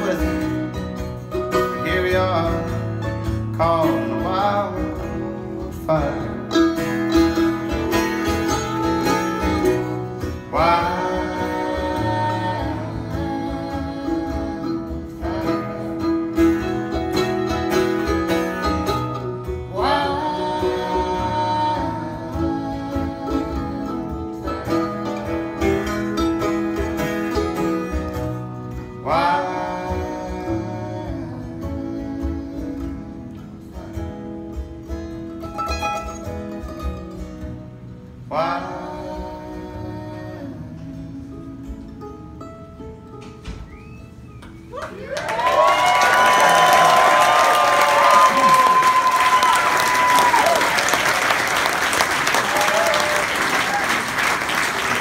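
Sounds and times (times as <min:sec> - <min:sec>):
plucked mandolin melody: 0:00.0 - 0:43.6
acoustic guitar: 0:00.0 - 0:55.0.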